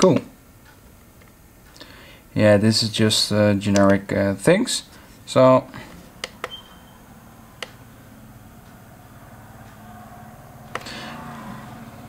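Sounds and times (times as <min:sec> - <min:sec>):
sharp clicks: 0:06.2 - 0:06.7, 0:07.6 - 0:07.8.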